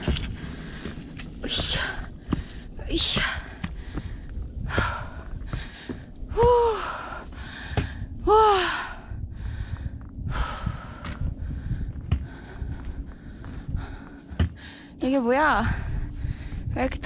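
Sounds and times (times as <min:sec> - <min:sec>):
person breathing heavily: 0:00.1 - 0:15.0, 0:15.6 - 0:16.8.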